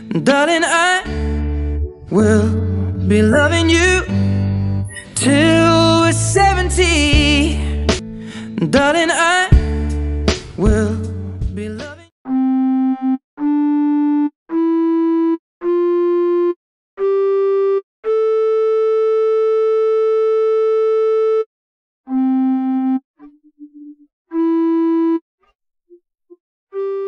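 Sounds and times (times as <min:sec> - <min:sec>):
synthesized keyboard scale: 0:01.3 - 0:06.4, 0:12.3 - 0:25.2, 0:26.7 - 0:27.0.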